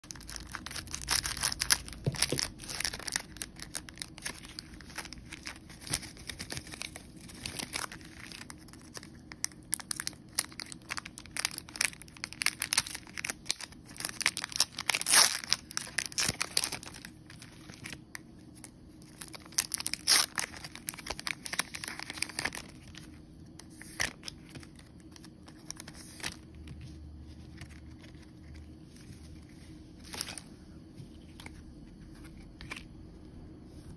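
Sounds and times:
wrapper tearing and crinkling: 0.0s - 23.1s
handling card stack: 0.1s - 30.5s, 31.2s - 32.9s.

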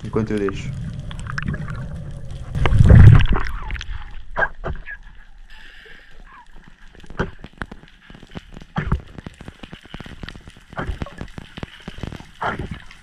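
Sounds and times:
low underwater rumble: 0.0s - 5.4s
ear clicks and squeaks: 6.3s - 13.0s.

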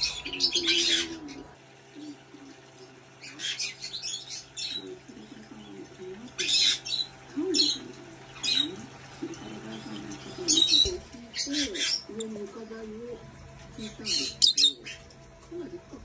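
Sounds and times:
parrots squawking: 0.0s - 2.2s, 3.2s - 5.6s, 6.2s - 12.4s, 13.8s - 15.2s
steady low hum: 0.0s - 16.0s.

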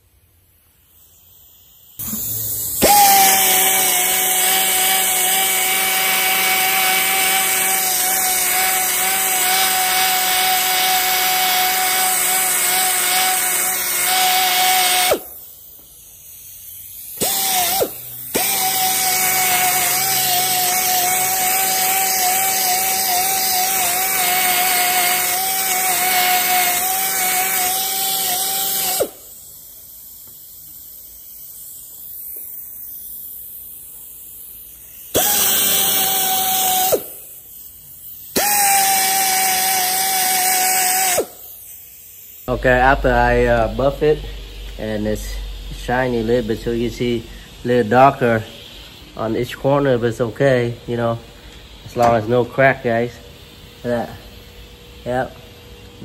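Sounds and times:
electric polisher motor whining: 2.0s - 9.8s, 17.2s - 29.1s.

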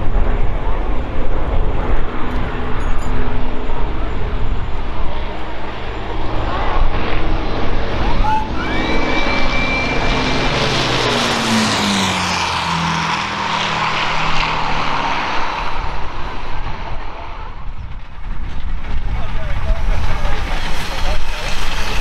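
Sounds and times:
propeller plane flying overhead: 0.0s - 22.0s.

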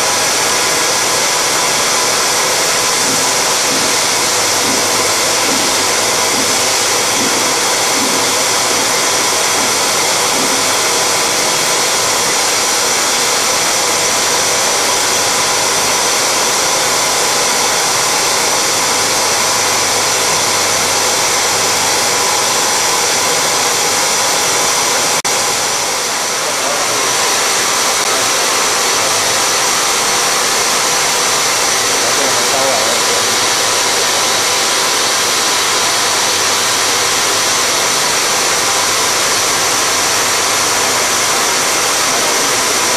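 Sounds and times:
cutting tool engraving steel: 0.0s - 42.9s
compressed air nozzle hissing: 1.4s - 13.6s
spindle turning: 1.5s - 12.8s.

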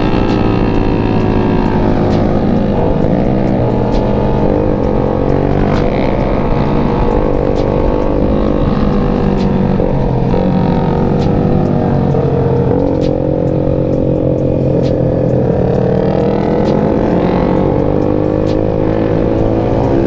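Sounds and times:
motorcycle engine revving high: 0.0s - 20.0s.

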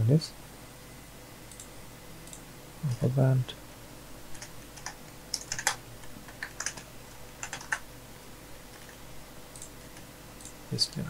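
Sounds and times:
keyboard and mouse clicking: 1.5s - 2.4s, 4.3s - 7.9s, 8.7s - 10.6s.

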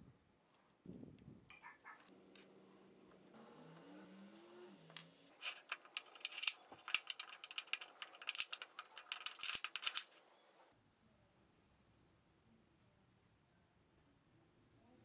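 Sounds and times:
metal clamps clicking and rattling: 5.4s - 10.1s.

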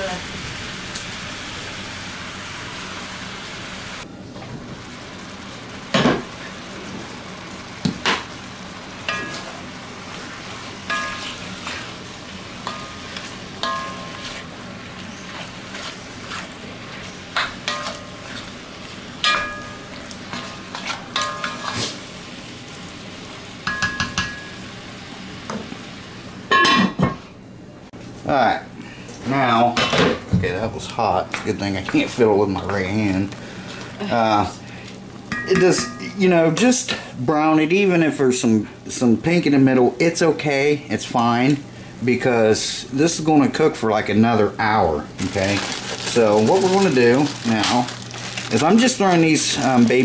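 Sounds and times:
meat sizzling in a pot: 0.0s - 27.0s, 44.3s - 50.0s.

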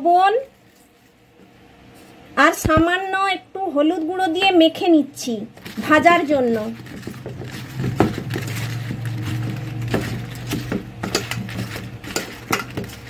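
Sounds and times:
eggplant tossed in metal bowl: 5.2s - 13.0s.

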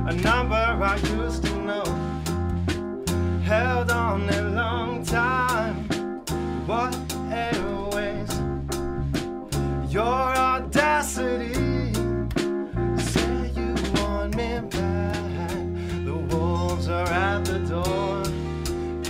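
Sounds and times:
electric bass: 0.0s - 19.0s
person singing: 3.4s - 5.9s, 6.7s - 8.7s, 9.9s - 12.0s, 13.0s - 19.0s
sharp drum hits: 7.0s - 10.0s.

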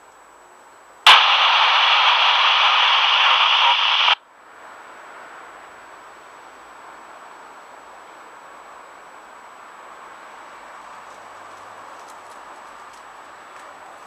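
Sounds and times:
radio static hiss: 1.1s - 4.2s.

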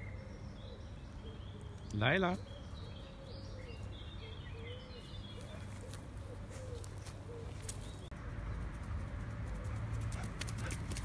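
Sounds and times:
pigeon cooing: 2.5s - 7.8s.

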